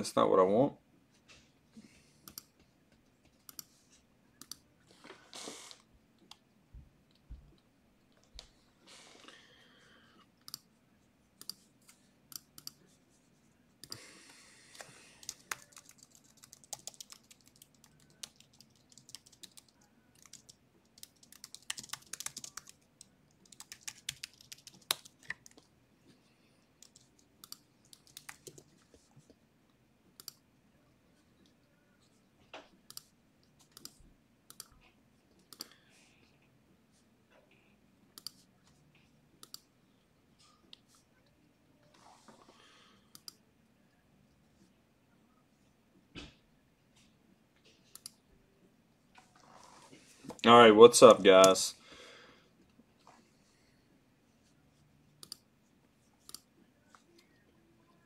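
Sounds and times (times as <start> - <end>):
keyboard and mouse clicks: 4.4 - 4.6, 11.4 - 11.6, 14.7 - 25.7, 26.8 - 28.7, 30.2 - 30.4, 32.6 - 35.8, 38.2 - 38.4, 39.4 - 39.7, 43.1 - 43.4, 47.9 - 48.2, 55.2 - 55.4.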